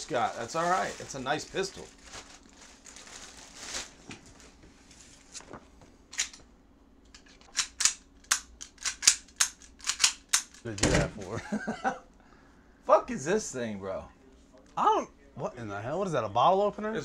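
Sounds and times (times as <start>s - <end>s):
plastic wrapping crinkling: 0.0s - 5.8s
pistol action clicking: 7.5s - 10.6s.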